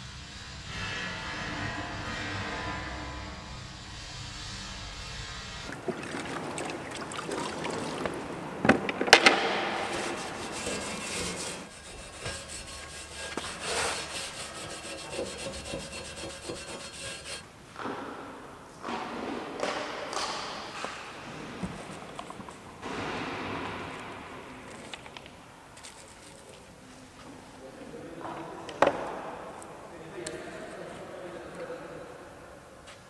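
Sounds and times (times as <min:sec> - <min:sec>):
scraping and rubbing: 0:05.6 - 0:17.5, 0:21.2 - 0:25.1, 0:25.8 - 0:26.8.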